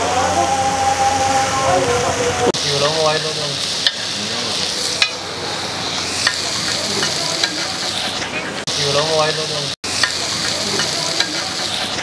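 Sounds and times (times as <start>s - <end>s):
food sizzling in oil: 2.6s - 12.0s
metal spatula clicking on griddle: 3.1s - 4.2s, 6.2s - 8.1s, 10.0s - 12.0s.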